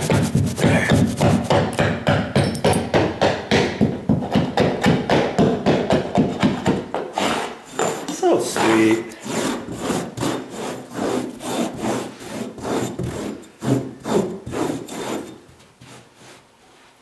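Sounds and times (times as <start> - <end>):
carpet tool scraping: 0.0 - 1.8, 6.3 - 17.0.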